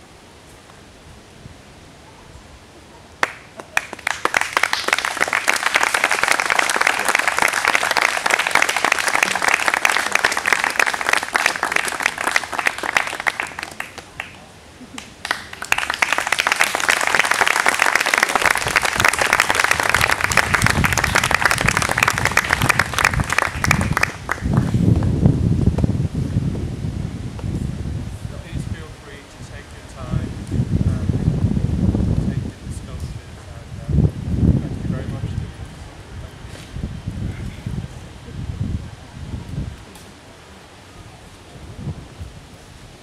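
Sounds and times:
crowd applauding: 0:03.2 - 0:24.7.

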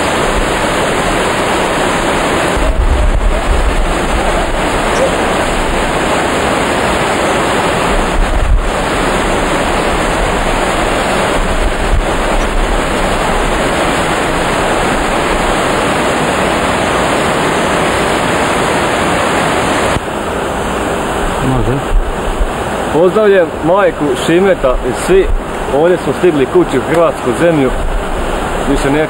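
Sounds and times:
waterfall rushing: 0:00.0 - 0:29.0
low bumps: 0:02.5 - 0:06.2, 0:07.8 - 0:15.6.

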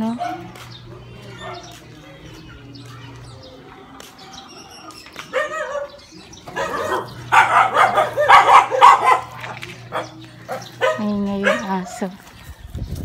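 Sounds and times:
dog barking: 0:00.0 - 0:00.6, 0:05.3 - 0:12.1.

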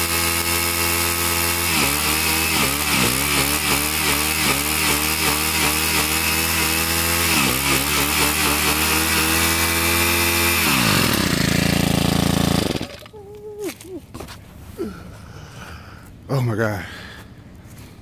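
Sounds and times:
string trimmer engine running: 0:00.0 - 0:13.9.

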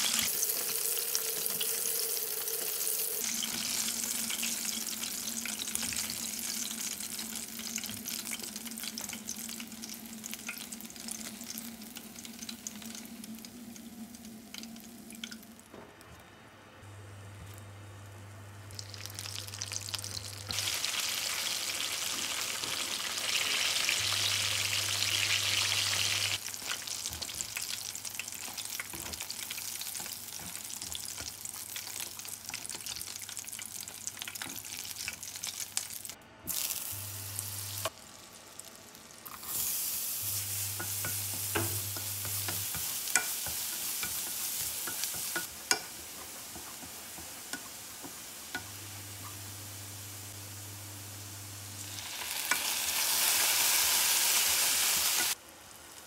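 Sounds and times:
chicken wings deep-frying in oil: 0:00.0 - 0:15.8, 0:18.6 - 0:56.0
garlic sizzling in fat: 0:00.0 - 0:15.8, 0:18.6 - 0:56.0
chopsticks tapping a pan: 0:40.7 - 0:48.8.

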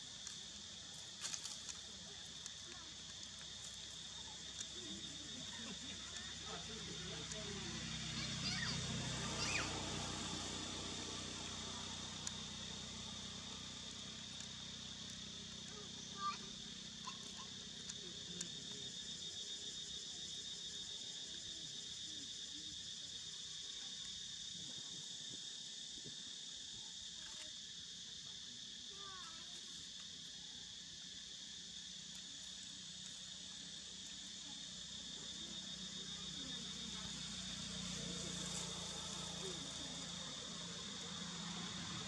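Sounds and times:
insect chorus drone: 0:00.0 - 0:42.0
sharp ticks: 0:12.0 - 0:12.9, 0:13.6 - 0:15.2.

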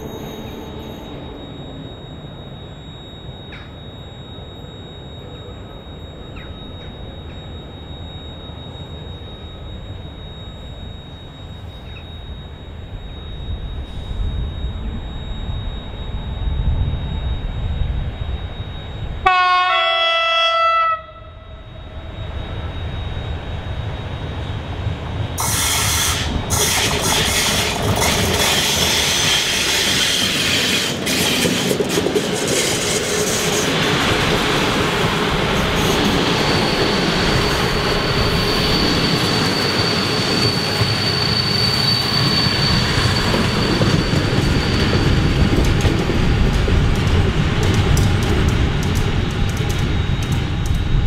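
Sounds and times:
high wheel squeal: 0:00.0 - 0:02.8, 0:25.4 - 0:50.8
electric locomotive approaching: 0:00.0 - 0:51.0
train wheels rumbling and clattering: 0:24.8 - 0:51.0.

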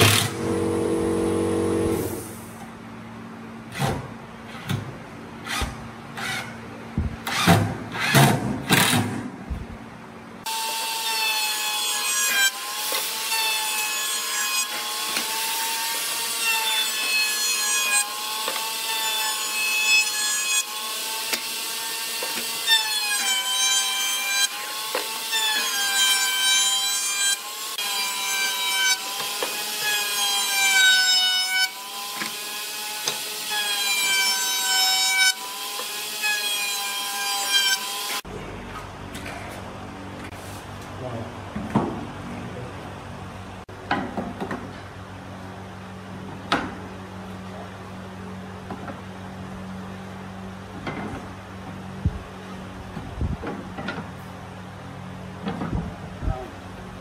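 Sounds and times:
router high whine: 0:00.0 - 0:02.4.

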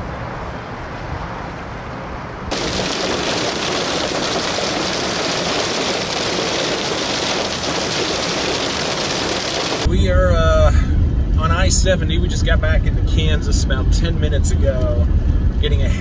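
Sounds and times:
heavy rain on wet pavement: 0:02.5 - 0:09.9.

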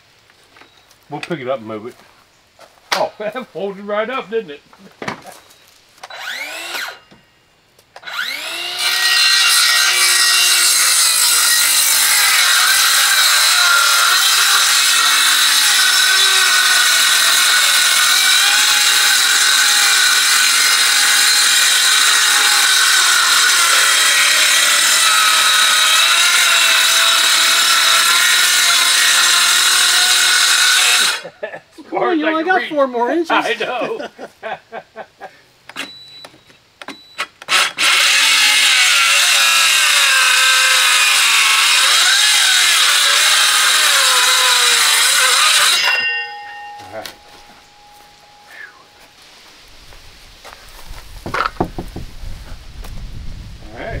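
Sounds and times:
circular saw cutting plywood: 0:06.0 - 0:07.0, 0:08.0 - 0:31.2, 0:37.4 - 0:46.4.

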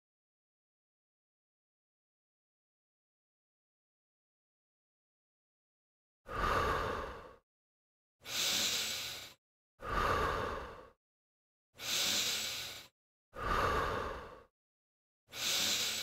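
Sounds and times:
man breathing through mouth: 0:06.3 - 0:07.4, 0:08.2 - 0:11.0, 0:11.8 - 0:14.5, 0:15.3 - 0:16.0.

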